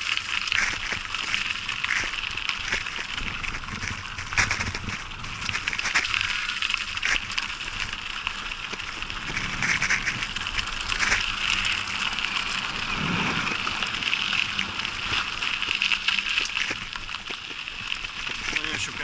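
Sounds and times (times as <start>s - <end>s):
bicycle tyres rolling over dry leaves: 0.0s - 19.0s.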